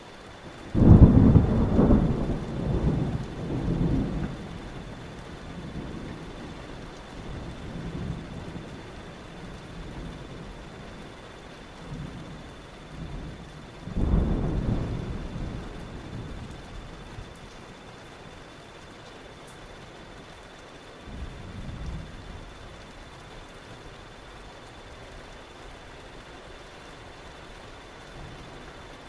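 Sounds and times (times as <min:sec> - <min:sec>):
steady rain: 0:00.0 - 0:29.0
rolling thunder: 0:00.7 - 0:10.7, 0:11.8 - 0:17.4.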